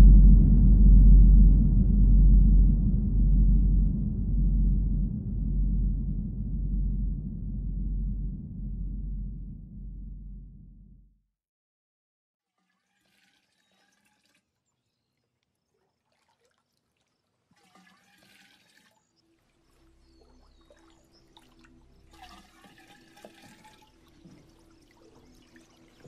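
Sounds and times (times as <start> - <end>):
low steady hum: 0.0 - 11.2
water splashing and trickling: 12.4 - 26.0.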